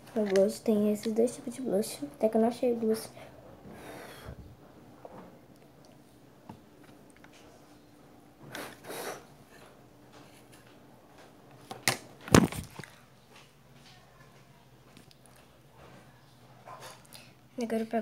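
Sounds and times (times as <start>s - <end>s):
phone handling noise: 11.8s - 12.8s.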